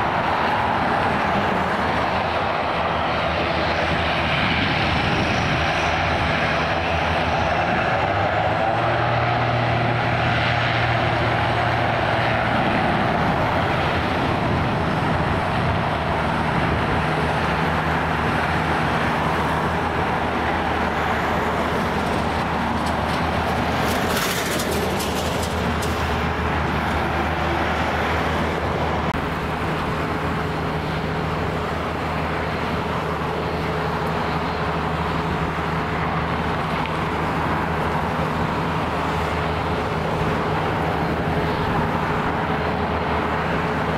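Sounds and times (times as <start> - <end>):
turboprop engines droning: 0.0 - 43.9.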